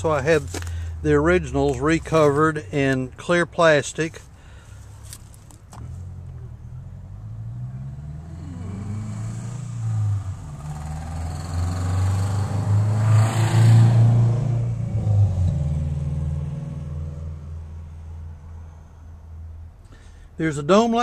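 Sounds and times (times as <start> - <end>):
vehicle engine passing by: 5.8 - 17.8.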